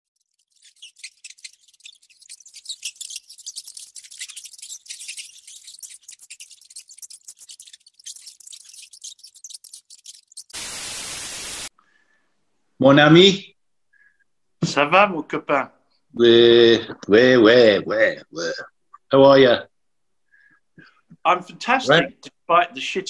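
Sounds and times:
rat gnawing and chewing: 0.1s - 10.6s
hiss-like static: 4.7s - 11.7s.

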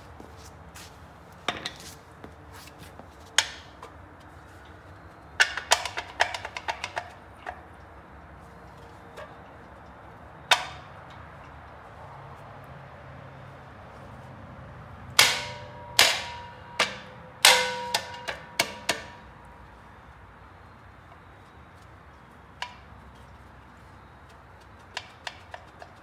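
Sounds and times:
metal-on-metal clanks: 15.1s - 19.4s.

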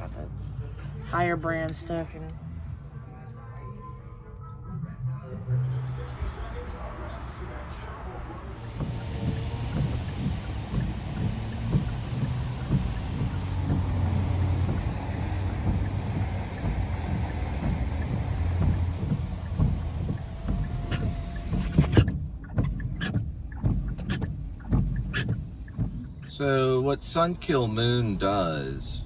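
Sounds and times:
car rumble from inside cabin: 0.0s - 29.0s
hiss of noise: 7.2s - 22.0s.

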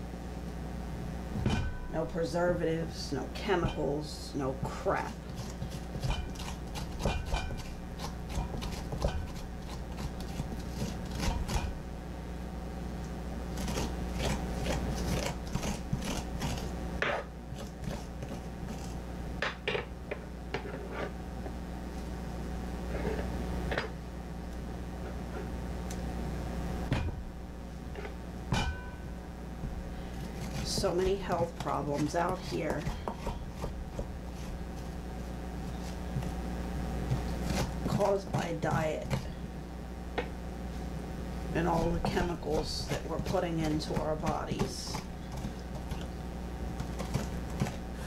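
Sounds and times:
low hum: 0.0s - 48.0s
metal spoon scraping pumpkin: 2.0s - 11.7s, 13.5s - 16.7s, 17.5s - 19.0s, 30.2s - 35.0s, 37.3s - 39.3s, 41.6s - 46.1s.

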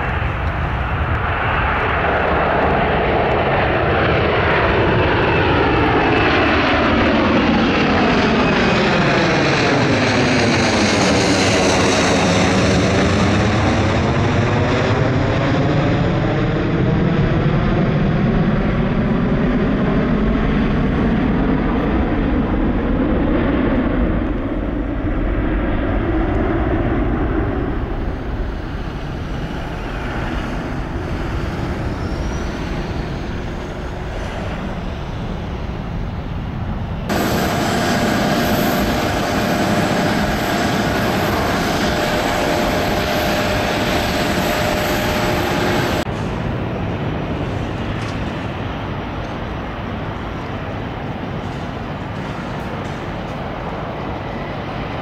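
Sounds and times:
jet engines rumbling: 0.0s - 55.0s
hissy jet noise with whine: 27.7s - 55.0s.

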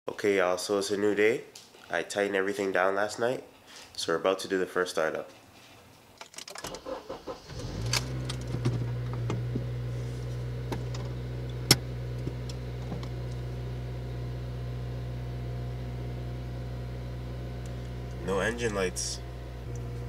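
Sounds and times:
car engine starting and idling: 6.6s - 20.0s.

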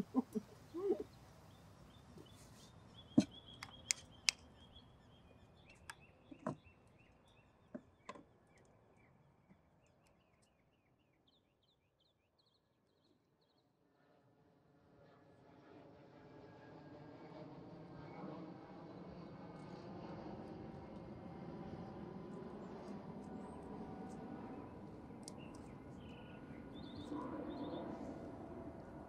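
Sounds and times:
birds chirping: 0.0s - 9.2s, 24.4s - 28.4s.

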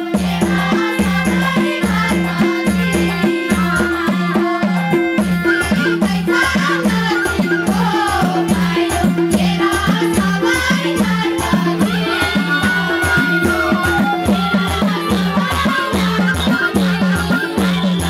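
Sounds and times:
fast drum beat: 0.0s - 18.0s
shaken rattle percussion: 0.0s - 18.0s.

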